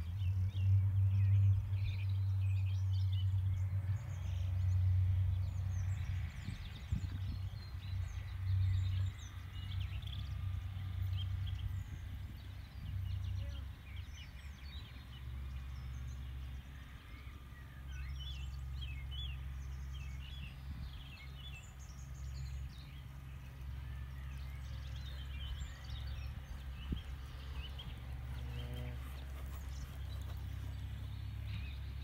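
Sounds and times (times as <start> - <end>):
wind noise on microphone: 0.0 - 15.1, 20.3 - 21.6, 25.9 - 31.7
small birds chirping: 0.0 - 32.0.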